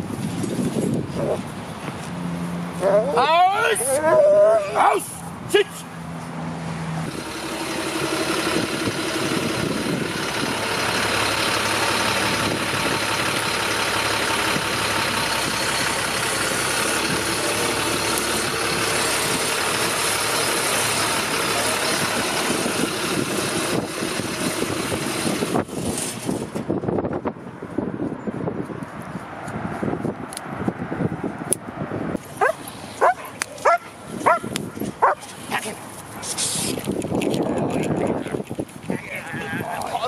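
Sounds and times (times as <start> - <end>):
truck engine idling: 6.9 - 26.6.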